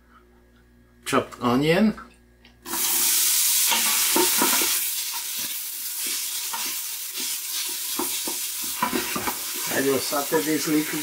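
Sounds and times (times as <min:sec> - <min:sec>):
onion sizzling in oil: 0:02.7 - 0:11.0
wooden spatula scraping and tapping: 0:05.4 - 0:09.5.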